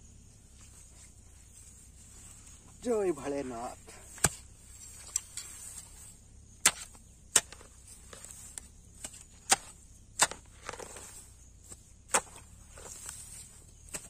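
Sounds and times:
hand tool chopping into soil: 4.1 - 6.0, 6.6 - 14.0.

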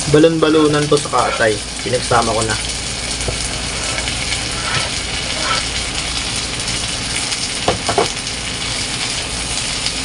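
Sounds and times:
meat sizzling in a pan: 0.0 - 10.0
spatula scraping a pan: 1.0 - 1.6, 3.1 - 6.2.

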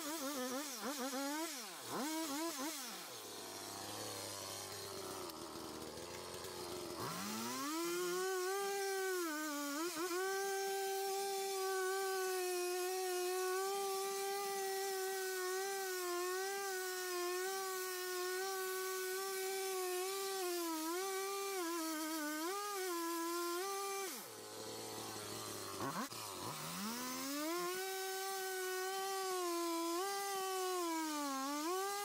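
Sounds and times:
chainsaw cutting log: 0.0 - 32.0.

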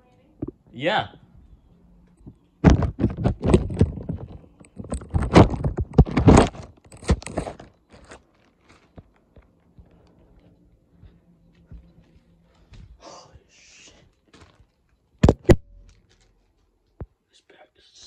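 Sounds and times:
phone handling noise: 15.2 - 16.1.

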